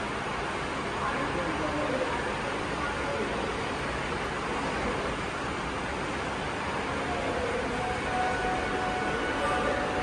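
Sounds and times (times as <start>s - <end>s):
station platform ambience: 0.0s - 10.0s
steady pitched tone: 7.5s - 10.0s.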